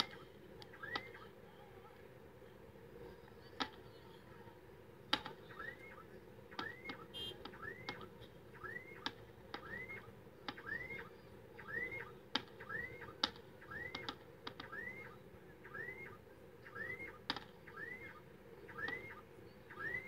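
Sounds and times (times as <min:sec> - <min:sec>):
whistled chirp: 0:00.0 - 0:01.4, 0:05.4 - 0:20.0.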